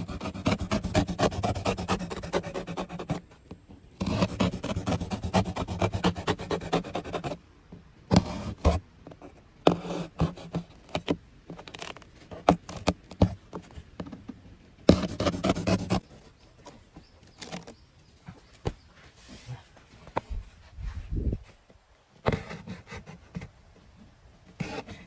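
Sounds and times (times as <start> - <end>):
knife slicing through cardboard: 0.0 - 3.2, 4.0 - 7.4, 8.1 - 8.8, 9.7 - 13.4, 14.9 - 16.0, 22.3 - 23.2.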